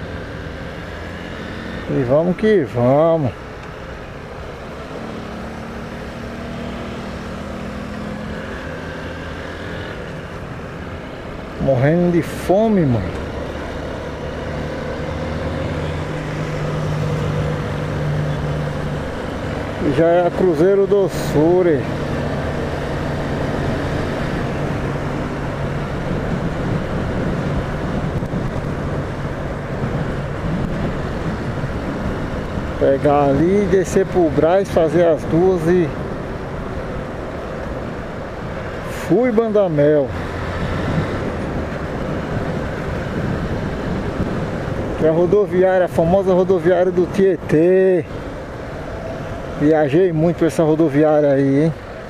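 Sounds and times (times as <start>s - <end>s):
motorcycle engine cruising: 0.0s - 52.0s
wind and road noise: 0.0s - 52.0s
wind over microphone: 21.9s - 34.6s, 40.1s - 46.6s.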